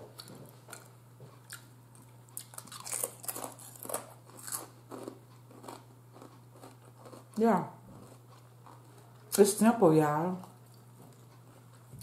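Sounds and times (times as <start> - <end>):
potato chip crunching: 1.5 - 9.3.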